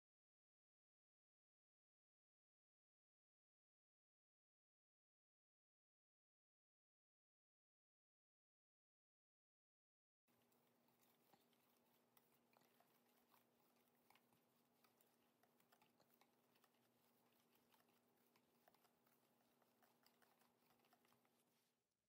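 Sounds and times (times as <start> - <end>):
spoon stirring flour in bowl: 10.3 - 21.8.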